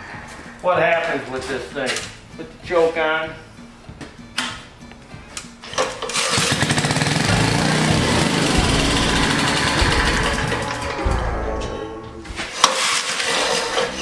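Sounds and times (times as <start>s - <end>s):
single-cylinder engine running: 6.1s - 11.0s.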